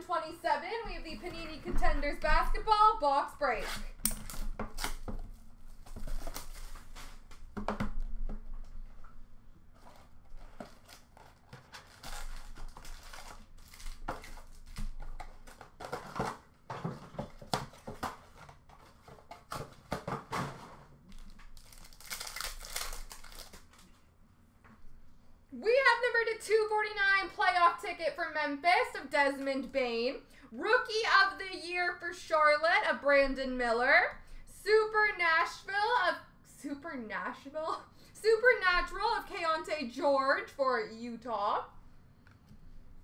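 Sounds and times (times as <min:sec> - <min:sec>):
wrapper being torn open: 0:05.7 - 0:07.5, 0:09.8 - 0:16.0, 0:21.1 - 0:24.0
card pack wrappers crinkling: 0:09.8 - 0:16.2, 0:21.1 - 0:24.0.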